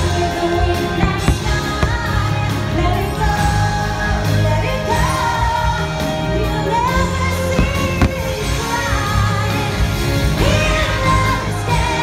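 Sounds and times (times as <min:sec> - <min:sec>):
song with singing over bass: 0:00.0 - 0:12.0
firework bangs: 0:01.0 - 0:02.3, 0:07.6 - 0:08.7.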